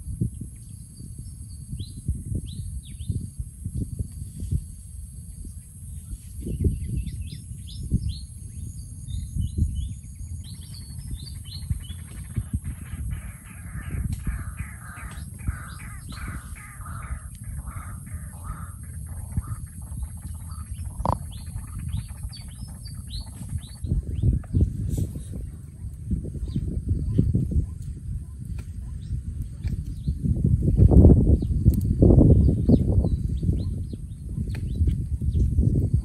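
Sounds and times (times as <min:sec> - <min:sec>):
wind rumble on microphone: 0:00.0 - 0:36.0
high bird chirps: 0:09.2 - 0:24.7
rough bird calls: 0:10.4 - 0:24.8.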